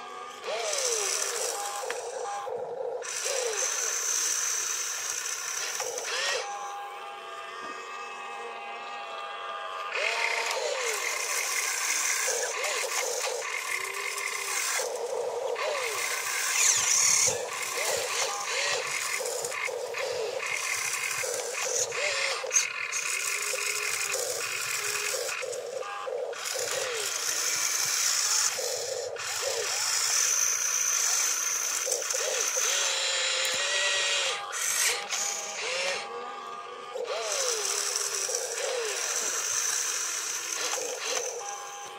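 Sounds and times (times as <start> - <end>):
toy excavator motor whirring: 0.0 - 41.9.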